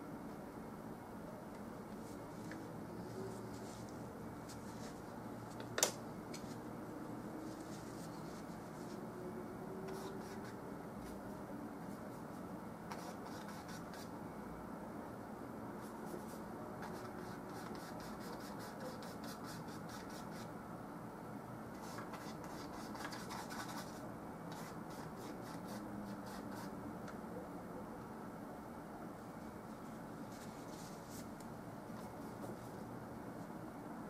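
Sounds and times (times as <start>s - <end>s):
steady low hum: 0.0s - 34.0s
paintbrush strokes on canvas: 30.2s - 31.3s.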